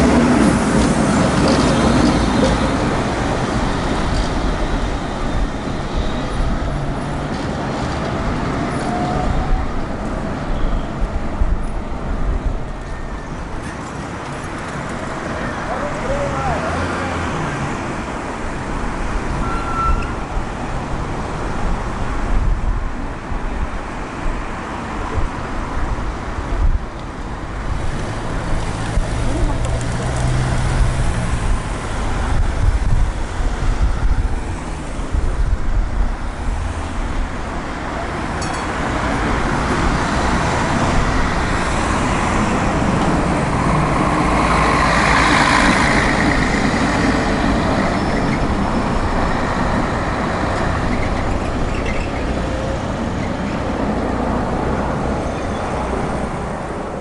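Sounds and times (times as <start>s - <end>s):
tram rumbling along track: 0.0s - 57.0s.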